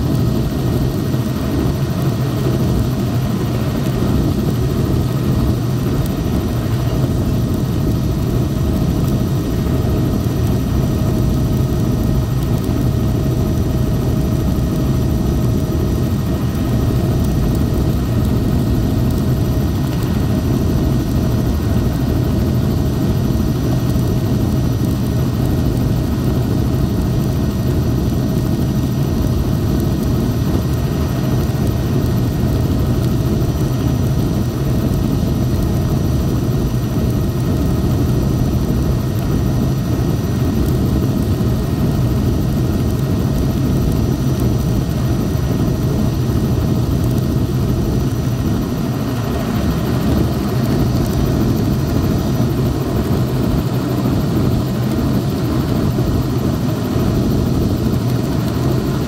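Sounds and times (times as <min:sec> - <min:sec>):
helicopter rotor and engine drone: 0:00.0 - 0:59.0
thin steady whine: 0:00.0 - 0:59.0.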